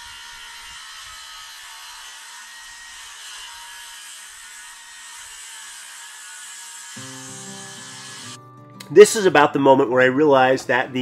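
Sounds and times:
power tool whirring: 0.0s - 8.4s.

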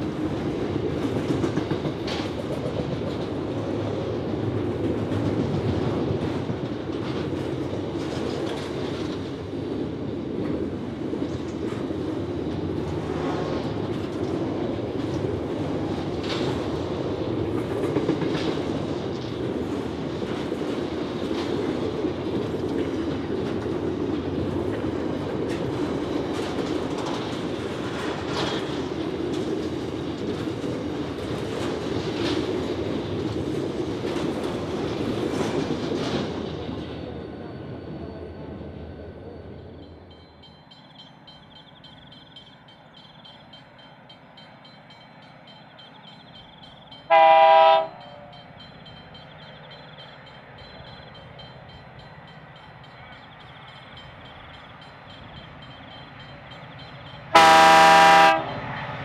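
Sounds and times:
wheels clicking over rail joints: 0.0s - 37.0s
locomotive horn blast: 47.1s - 48.3s, 57.3s - 58.6s.

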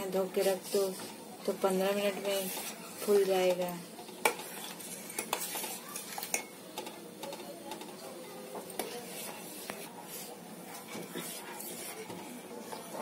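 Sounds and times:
spoon stirring in a pot: 0.0s - 13.0s
spoon clinking against a pot: 5.1s - 7.9s.

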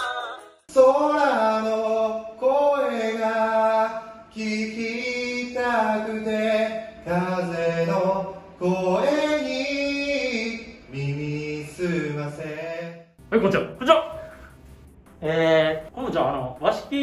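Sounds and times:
man singing slow melody: 0.7s - 13.1s.

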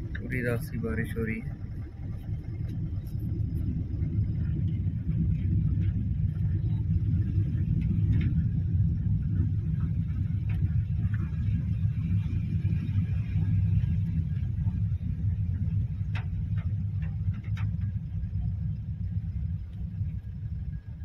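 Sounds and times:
car driving through water: 0.0s - 21.0s
faint ticks: 13.4s - 20.5s.

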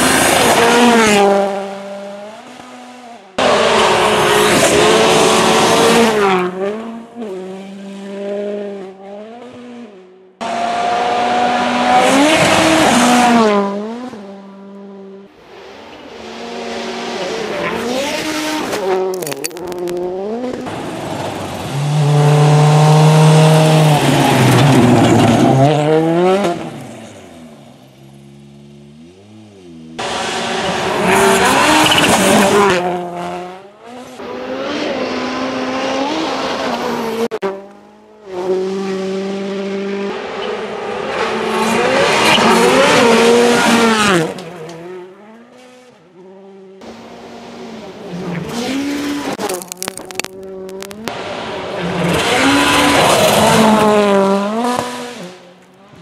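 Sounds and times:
rally car engine revving: 0.0s - 56.0s
gravel noise from tyres: 15.3s - 33.1s, 40.0s - 56.0s.

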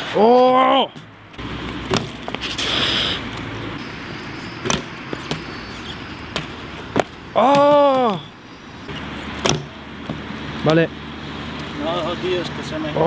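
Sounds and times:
bike hitting ground: 1.8s - 2.6s, 4.6s - 5.5s
bike tyre hissing on concrete: 2.4s - 3.4s.

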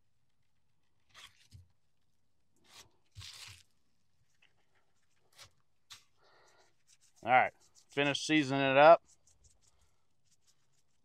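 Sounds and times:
gloved hands rustling: 2.6s - 11.0s.

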